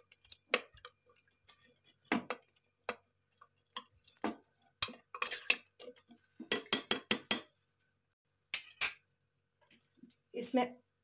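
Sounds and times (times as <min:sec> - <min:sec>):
metal spoon clinking in pot: 0:04.8 - 0:05.7, 0:06.4 - 0:07.5.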